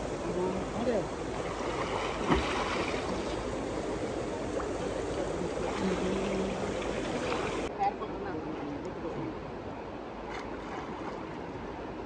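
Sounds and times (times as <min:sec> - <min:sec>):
river water rushing: 0:00.0 - 0:12.0
faint voices: 0:04.4 - 0:09.5.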